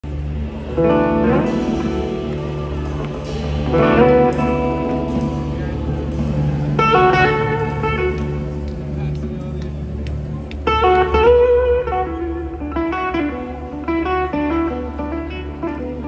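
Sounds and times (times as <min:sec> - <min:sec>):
steady low drone: 0:00.0 - 0:16.0
electric slide guitar: 0:00.1 - 0:16.0.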